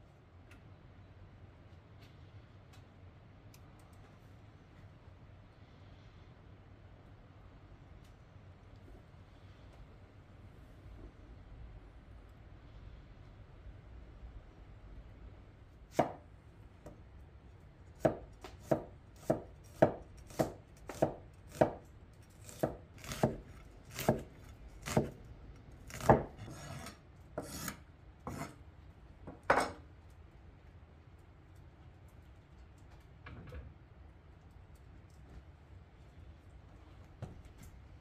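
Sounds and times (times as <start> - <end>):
knife chopping on wooden board: 15.9 - 16.2, 18.0 - 25.2, 25.9 - 28.5.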